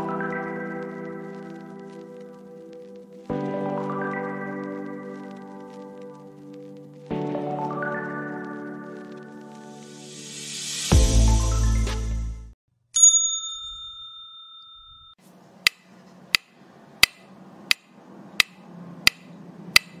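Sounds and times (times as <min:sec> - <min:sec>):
background music: 0:00.0 - 0:12.6
bell-like ding: 0:13.0 - 0:15.2
sharp clicks: 0:15.6 - 0:20.0.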